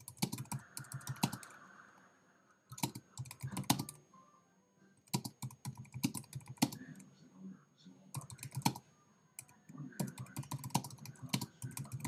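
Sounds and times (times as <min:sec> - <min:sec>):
typing on computer keyboard: 0:00.0 - 0:01.5, 0:02.7 - 0:04.0, 0:05.1 - 0:06.8, 0:08.2 - 0:08.8, 0:09.4 - 0:12.0.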